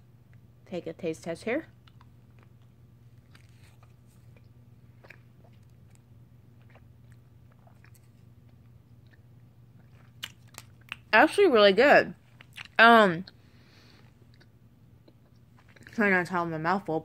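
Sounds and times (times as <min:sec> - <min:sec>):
steady low hum: 0:00.0 - 0:17.0
mouth chewing candy: 0:01.8 - 0:11.2, 0:12.2 - 0:16.1
mouth clicks and smacks: 0:04.3 - 0:11.1.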